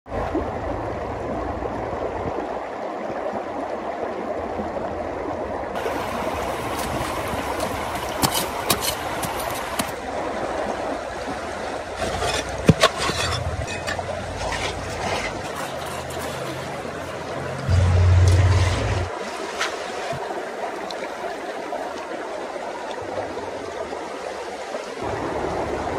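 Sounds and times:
rushing stream water: 0:00.1 - 0:25.9
hand pick striking rock: 0:08.2 - 0:09.9.

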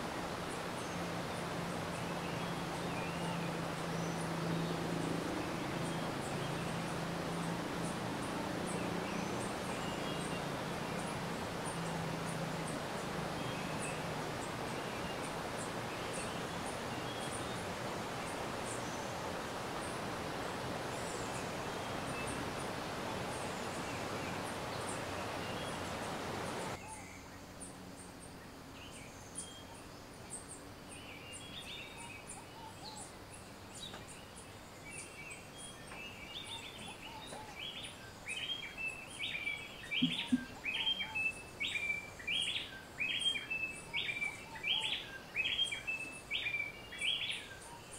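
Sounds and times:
stream water rushing: 0:00.0 - 0:26.8, 0:35.9 - 0:47.6
birds chirping and calling: 0:39.3 - 0:47.9.

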